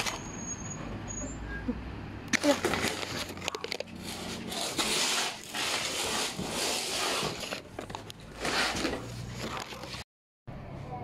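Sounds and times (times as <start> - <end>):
cardboard box scraping on concrete: 2.6 - 10.0.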